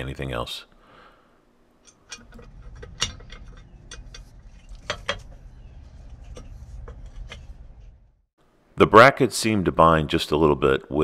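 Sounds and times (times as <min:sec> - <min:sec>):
low steady rumble: 0:01.5 - 0:08.3
metal clicks and clinks: 0:01.8 - 0:05.4
sharp metal knocks: 0:01.9 - 0:05.6.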